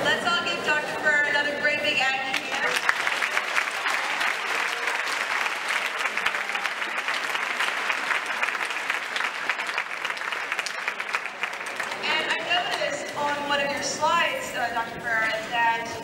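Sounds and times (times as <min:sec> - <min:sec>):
large audience applauding: 0:02.3 - 0:12.8.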